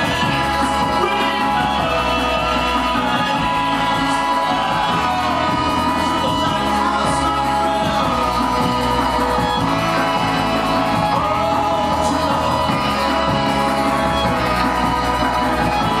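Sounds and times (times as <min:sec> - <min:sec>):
live band instrumental: 0:00.0 - 0:16.0.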